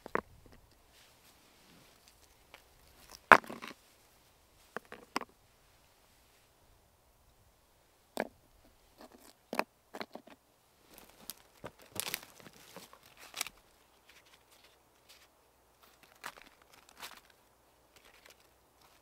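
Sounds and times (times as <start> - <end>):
twigs snapping underfoot: 10.9 - 19.0.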